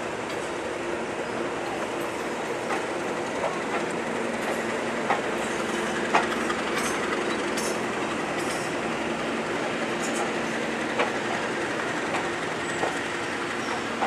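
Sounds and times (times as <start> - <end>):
diesel locomotive engines droning: 0.0 - 14.0
train wheels clicking over track: 1.6 - 14.0.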